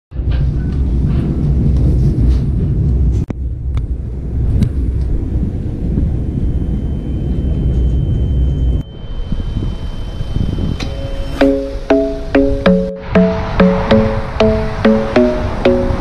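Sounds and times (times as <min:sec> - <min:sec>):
train rumbling: 0:00.1 - 0:16.0
thin high tone: 0:08.8 - 0:16.0.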